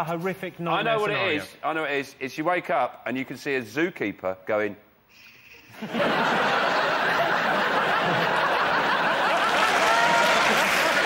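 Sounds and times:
audience laughing: 5.7s - 11.0s.

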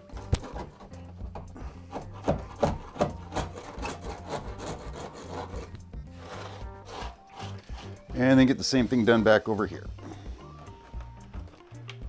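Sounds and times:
hand tool scraping on track: 0.2s - 8.3s.

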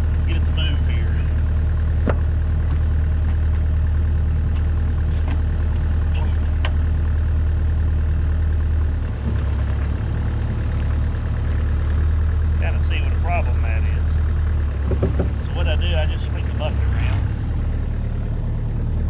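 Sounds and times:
excavator engine running: 0.0s - 19.0s.

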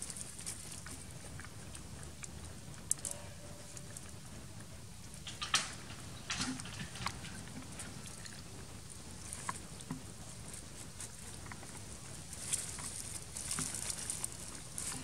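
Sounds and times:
leaf litter and twigs crackling: 6.2s - 15.0s.

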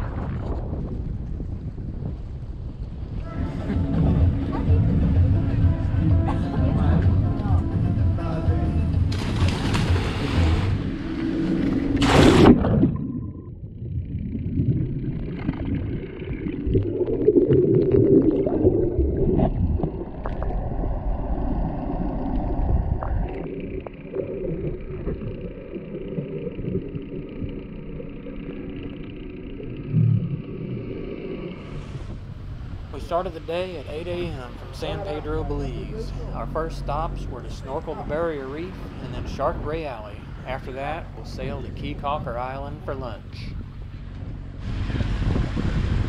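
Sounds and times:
low underwater rumble: 0.0s - 46.0s
faint steady hum: 2.0s - 46.0s
swimmers splashing into sea: 9.1s - 13.3s
underwater bubbling: 9.8s - 41.9s.

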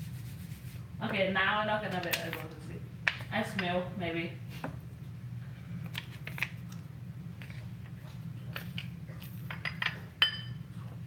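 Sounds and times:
steady low hum: 0.0s - 11.0s
glass dishes clinking on countertop: 9.5s - 10.6s
sharp ringing glass clink: 10.2s - 10.6s.

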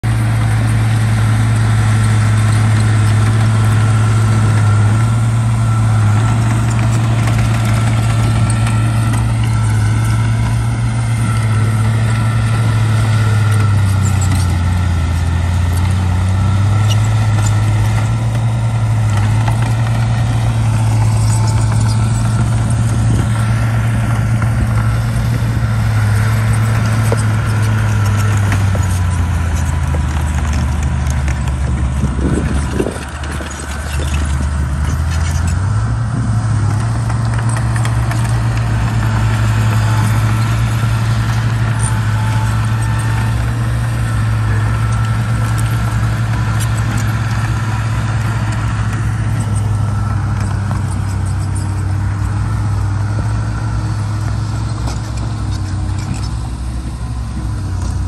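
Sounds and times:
bulldozer diesel engine under load: 0.0s - 58.0s.

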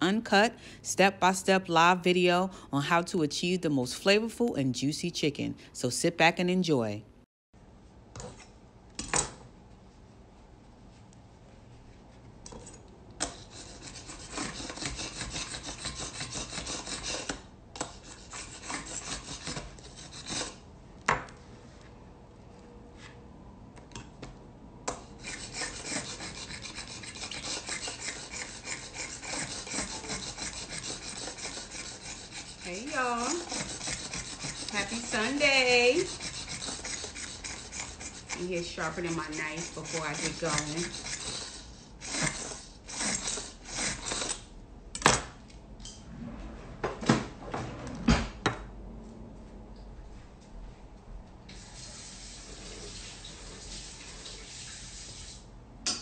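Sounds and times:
knife scraping on sharpener: 12.5s - 20.6s, 25.2s - 44.5s.

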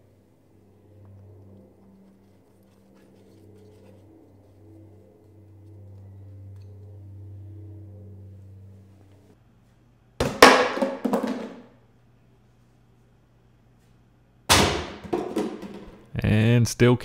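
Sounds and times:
faint low hum: 0.0s - 10.2s
object hitting and clattering: 10.2s - 11.7s, 14.5s - 16.0s.

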